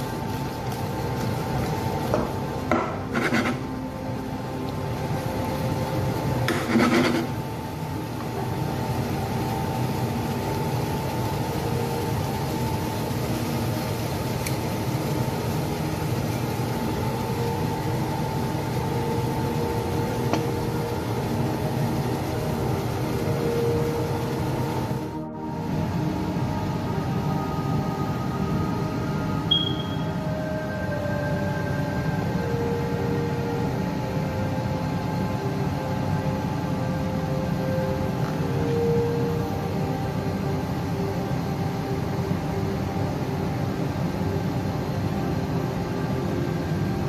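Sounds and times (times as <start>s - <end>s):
kitchen mechanical hum: 0.0s - 47.0s
spatula scraping a frying pan: 3.0s - 3.7s, 6.5s - 7.4s.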